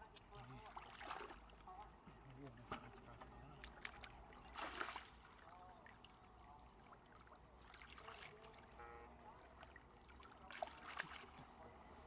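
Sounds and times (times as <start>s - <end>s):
muddy water sloshing: 0.3s - 12.0s
sharp water splashes: 0.6s - 1.7s, 3.6s - 6.3s, 6.9s - 11.9s.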